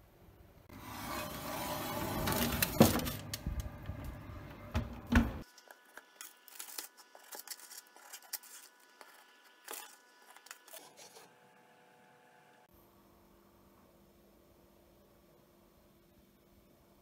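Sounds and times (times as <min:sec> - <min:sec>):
metal tray sliding on oven rack: 0:00.7 - 0:03.3
baking paper rustling: 0:05.4 - 0:11.3.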